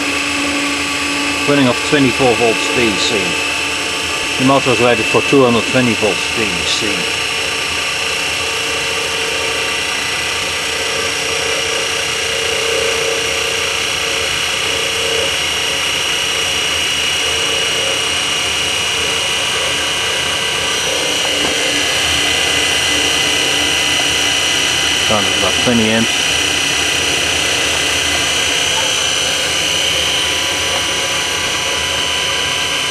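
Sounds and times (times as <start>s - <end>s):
electric motor hum and whine: 0.0s - 32.9s.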